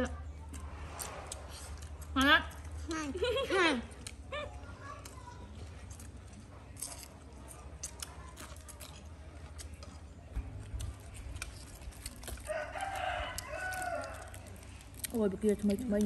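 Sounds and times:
chewing and crunching: 0:00.1 - 0:16.0.

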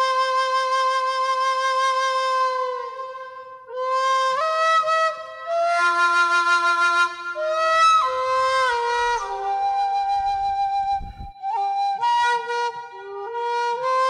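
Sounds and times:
flute playing slow melody: 0:00.0 - 0:14.0
lower held note: 0:08.1 - 0:11.3.

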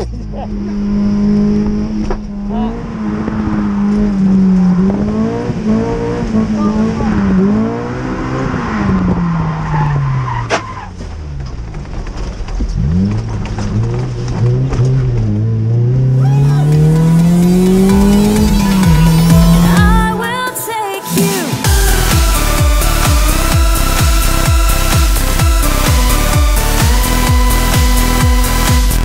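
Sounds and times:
car engine revving: 0:00.0 - 0:29.0
music: 0:16.2 - 0:29.0.

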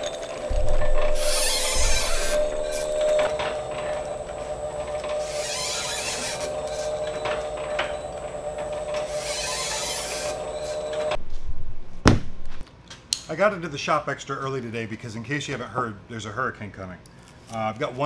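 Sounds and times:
press motor whine: 0:00.0 - 0:11.2.

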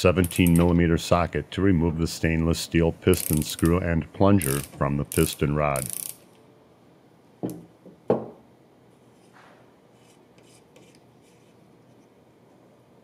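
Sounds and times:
faint scrapes and ticks: 0:09.1 - 0:12.2.

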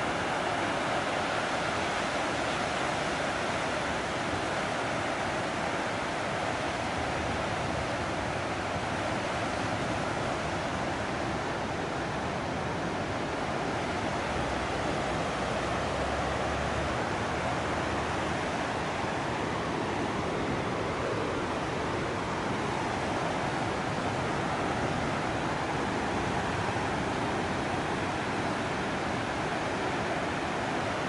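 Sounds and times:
wind: 0:00.0 - 0:31.0.

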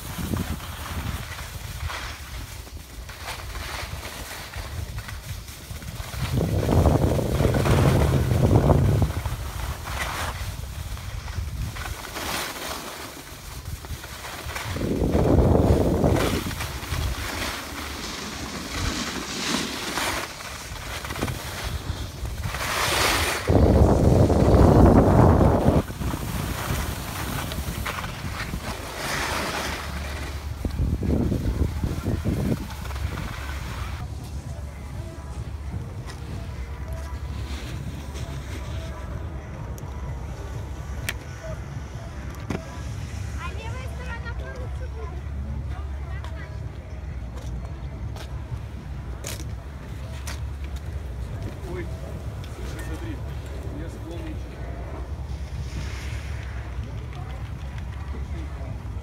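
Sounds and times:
wind on microphone: 0:00.0 - 0:12.2, 0:13.2 - 0:44.0.

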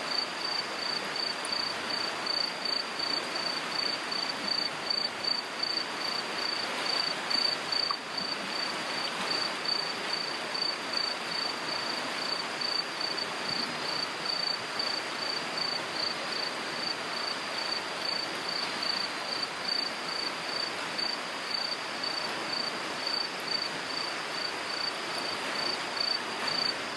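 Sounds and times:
floodwater rushing down stream: 0:00.0 - 0:26.9
insect chirping: 0:00.0 - 0:26.9.

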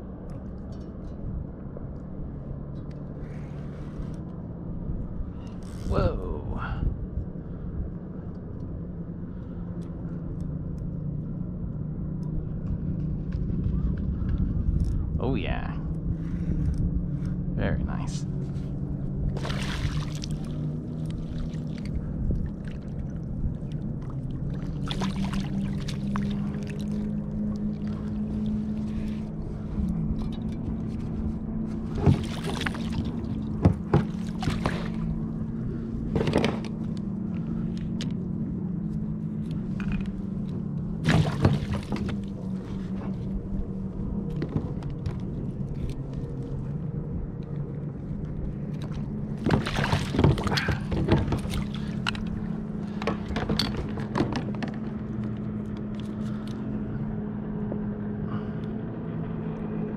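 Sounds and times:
steady low drone: 0:00.0 - 0:59.9
fish splashing in a net: 0:19.4 - 0:20.5.

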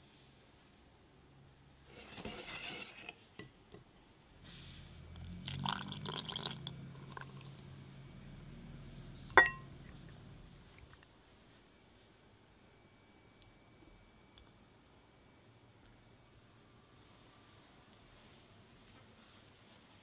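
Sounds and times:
liquid pouring into bowl: 0:05.3 - 0:07.7
glass clink: 0:09.4 - 0:09.7.

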